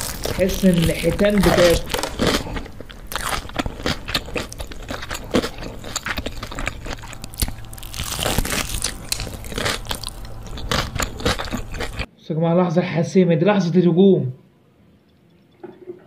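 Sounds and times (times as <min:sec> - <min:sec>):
fried chicken crunching: 0:00.0 - 0:12.1.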